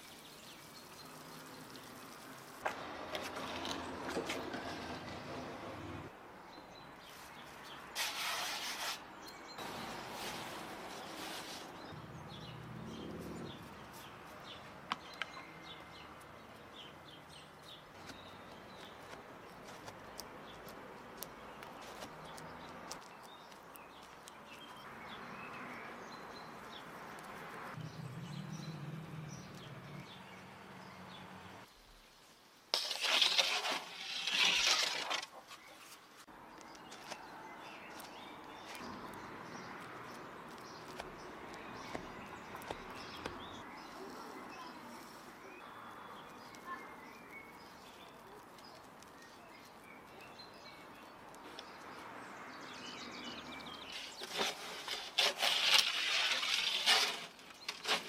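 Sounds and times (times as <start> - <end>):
loud rustling hissing noises: 7.1 - 11.9.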